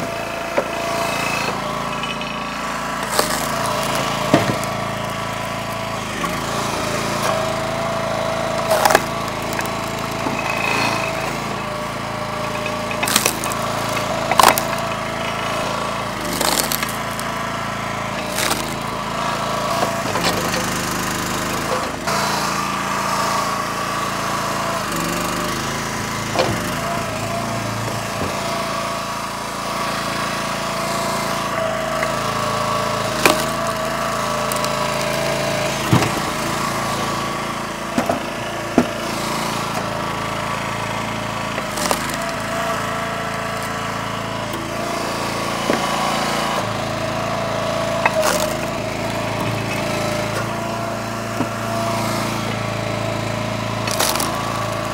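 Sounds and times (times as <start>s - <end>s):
small gas engine running: 0.0s - 54.9s
firewood cracking and knocking: 12.4s - 17.3s, 18.2s - 18.8s.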